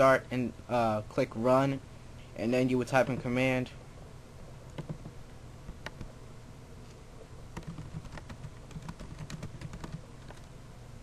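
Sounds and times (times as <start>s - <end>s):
typing on a computer keyboard: 4.8s - 5.1s, 7.6s - 10.5s.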